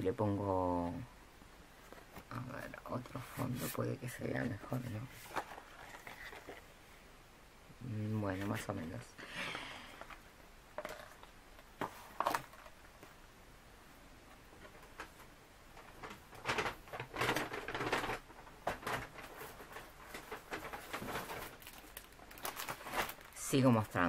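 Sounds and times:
plastic packaging crinkling: 4.6 - 6.7, 15.7 - 24.0.

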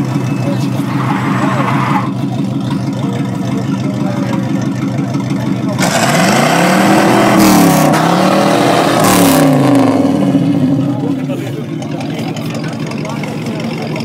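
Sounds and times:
car engine idling and revving: 0.0 - 14.0.

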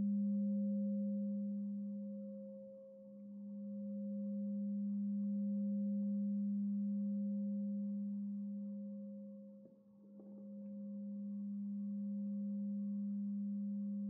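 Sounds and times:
crystal singing bowl tone: 0.0 - 14.0.

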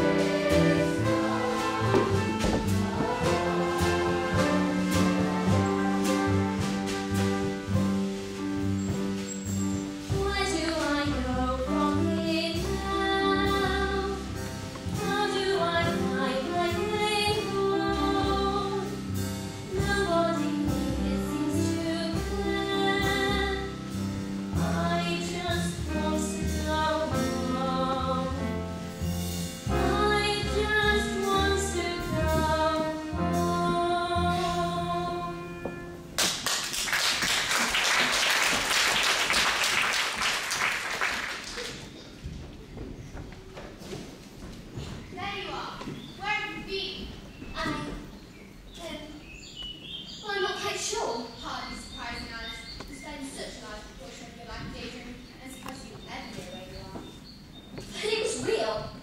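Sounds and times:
musical accompaniment: 0.0 - 41.9
girl singing: 10.1 - 14.2, 15.0 - 18.9, 19.6 - 23.7, 24.6 - 28.4, 29.8 - 35.6
audience applauding: 36.2 - 42.1.

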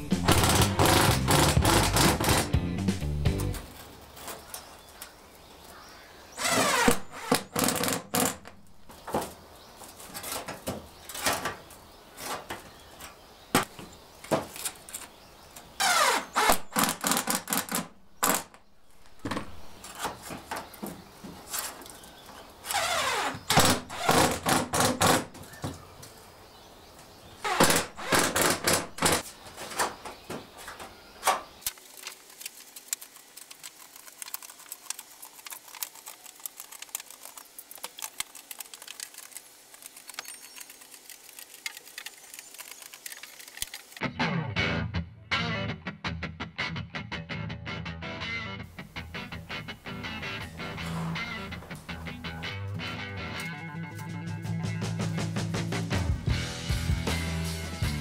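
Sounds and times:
impact driver driving screws: 0.2 - 2.5, 6.4 - 8.5, 22.7 - 25.2, 27.5 - 29.2.

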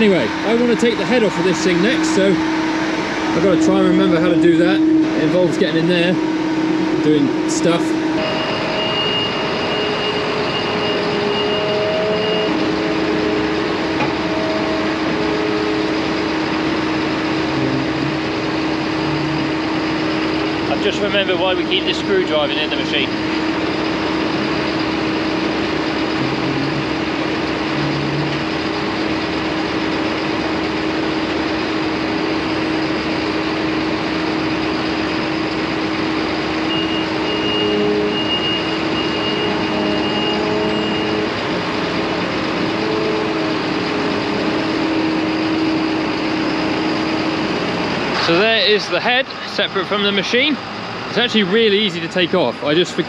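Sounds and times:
diesel engine running: 0.0 - 53.0
high beeps: 8.2 - 12.5.

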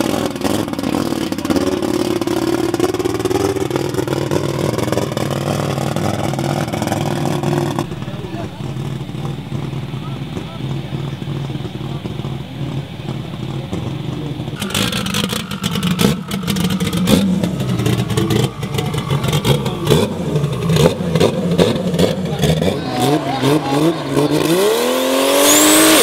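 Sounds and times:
exhaust cracks and pops: 0.0 - 22.8
truck engine idling and revving: 0.0 - 26.0.

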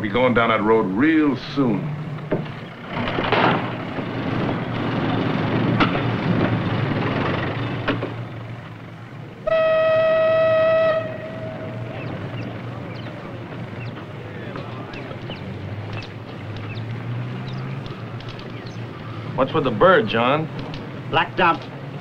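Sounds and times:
steady rumbling: 0.0 - 22.0
whistle blast: 9.5 - 12.2
sharp clicks: 14.6 - 18.8, 20.5 - 21.8.

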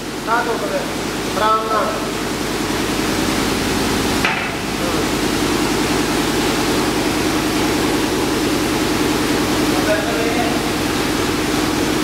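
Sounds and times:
industrial machinery hiss and hum: 0.0 - 12.0
machine clunk: 4.2 - 4.7.

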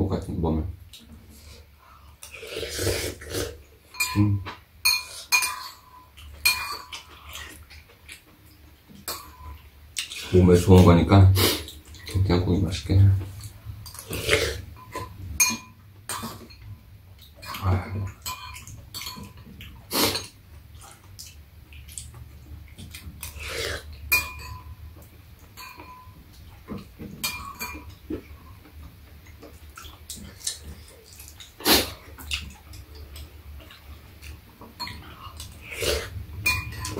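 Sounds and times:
spoons clinking against ceramic bowls: 3.9 - 7.1, 14.8 - 16.7, 17.4 - 19.4, 24.1 - 24.8, 25.5 - 26.2, 27.2 - 28.0, 34.8 - 35.8, 36.4 - 36.9.

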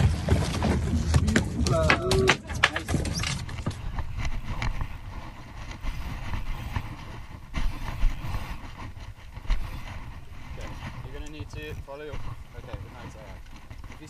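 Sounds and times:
wind: 0.0 - 14.0
faint scattered clicks: 10.6 - 11.9.

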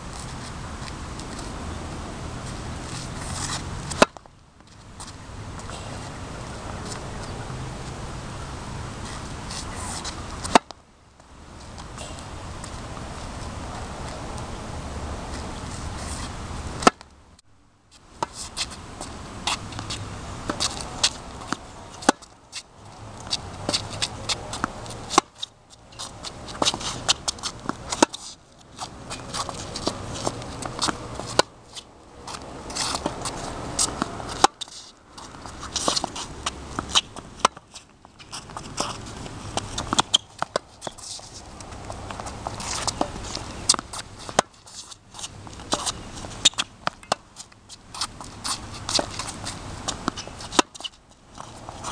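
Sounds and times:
steady background noise: 0.0 - 51.9
tennis ball hits and bounces: 3.2 - 4.3, 9.8 - 10.8, 16.8 - 17.1, 18.2 - 22.6, 23.2 - 51.9.

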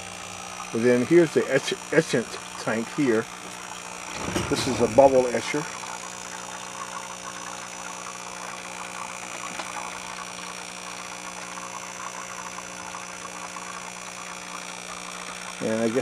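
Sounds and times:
air pump humming: 0.0 - 16.0
air bubbling through liquid: 3.6 - 15.6.

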